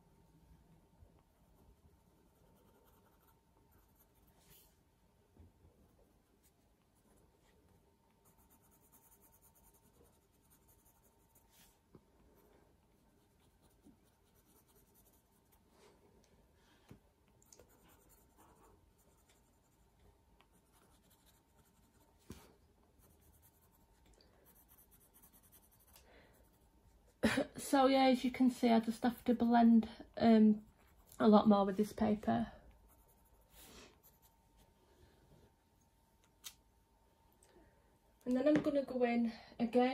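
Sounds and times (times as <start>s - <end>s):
pencil scratching on paper: 1.7s - 4.7s, 8.2s - 11.7s, 13.2s - 15.6s, 17.6s - 22.4s, 23.0s - 26.6s, 32.9s - 34.3s.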